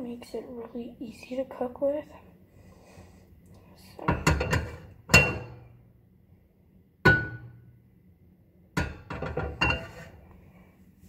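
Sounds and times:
frying pan clanking on stove grate: 8.8s - 9.9s.

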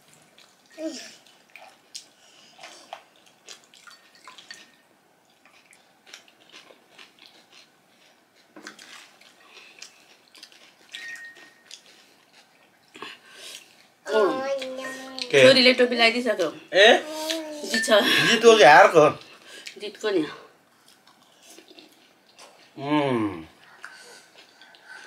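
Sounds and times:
drips: 3.1s - 4.8s.

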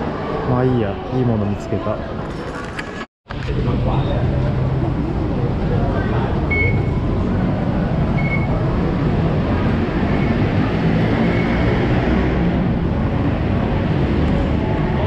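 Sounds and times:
station concourse hubbub: 0.0s - 15.0s
fare gate beep: 6.5s - 7.0s, 8.2s - 8.6s.

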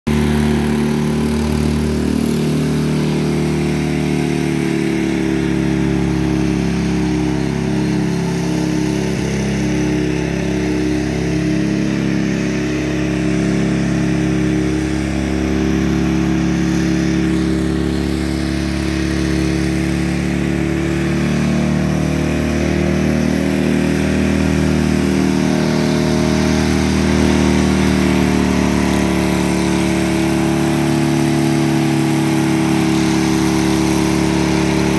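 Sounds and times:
lawn tractor engine running: 0.1s - 34.9s.

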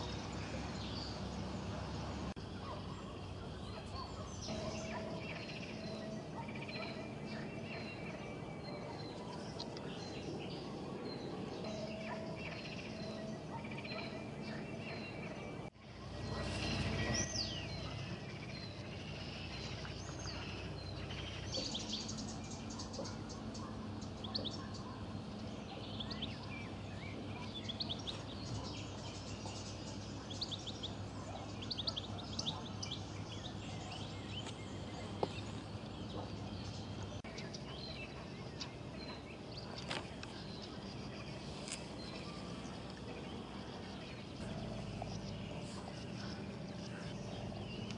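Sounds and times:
low background hum: 0.0s - 47.9s
songbirds chirping: 0.0s - 47.9s
descending whistled bird call: 2.5s - 36.6s.

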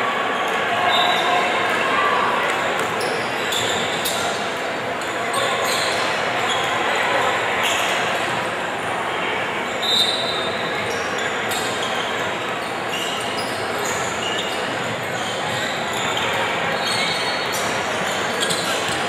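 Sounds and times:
crowd chatter: 0.0s - 19.0s
sneaker squeak: 2.8s - 4.4s, 5.0s - 6.9s, 9.8s - 19.0s.

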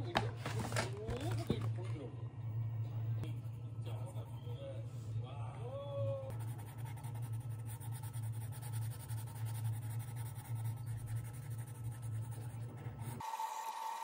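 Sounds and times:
steady low hum: 0.0s - 13.2s
pencil scratching on paper: 6.3s - 13.2s.

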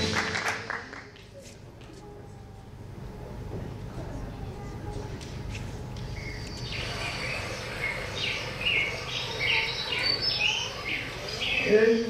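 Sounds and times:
birds chirping: 6.0s - 12.0s.

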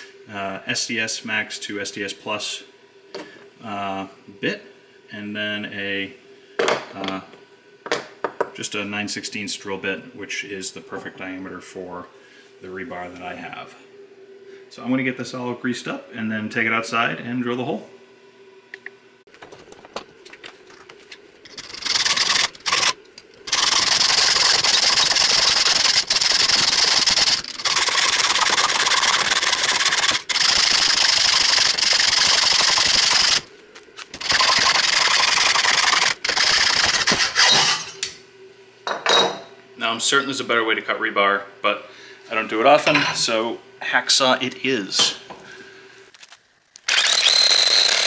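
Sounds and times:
hacksaw cutting steel: 21.5s - 33.5s, 34.2s - 37.9s, 46.9s - 48.0s.

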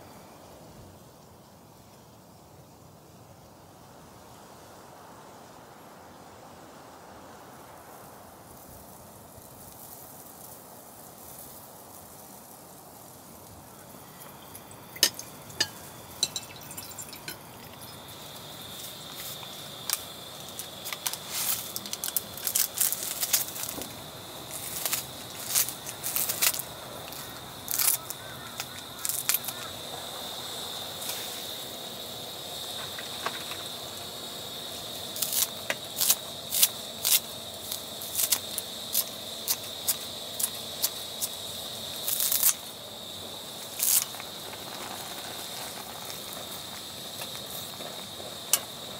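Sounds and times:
water pouring into pot: 13.6s - 20.7s.

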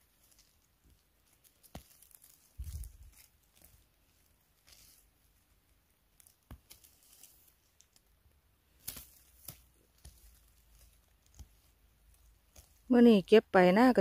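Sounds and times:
rustling of forest litter: 0.0s - 14.0s
small twig snaps: 8.8s - 11.5s.

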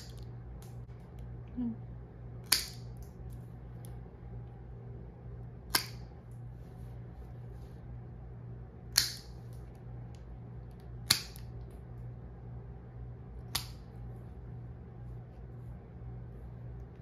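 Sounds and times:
nail clipper snapping: 2.4s - 3.1s, 5.7s - 6.1s, 8.9s - 9.6s, 10.7s - 11.6s, 13.4s - 13.9s.

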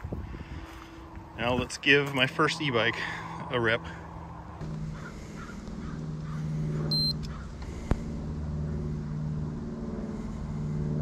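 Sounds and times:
low machine hum: 0.0s - 11.0s
high electronic beep: 6.9s - 7.2s.

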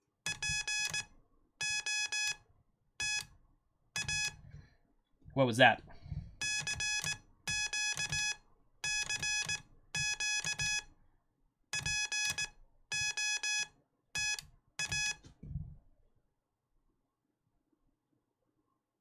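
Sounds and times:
morse code beeps: 0.3s - 2.4s, 3.0s - 3.3s, 4.0s - 4.4s, 6.4s - 10.9s, 11.8s - 15.2s.

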